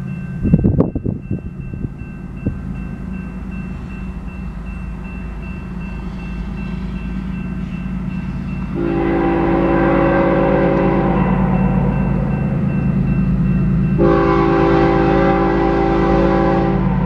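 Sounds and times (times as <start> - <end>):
freight train rumbling: 0.0 - 17.0
railroad crossing bell ringing: 0.0 - 17.0
locomotive horn chord: 8.3 - 12.5, 13.9 - 17.0.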